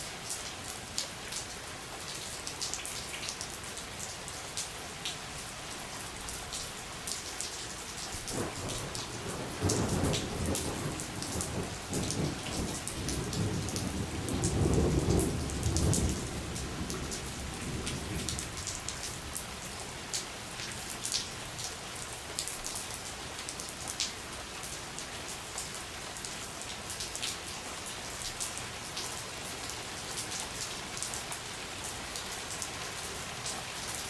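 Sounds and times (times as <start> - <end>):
steady rain: 0.0 - 34.0
low thunder rumble: 8.3 - 18.9.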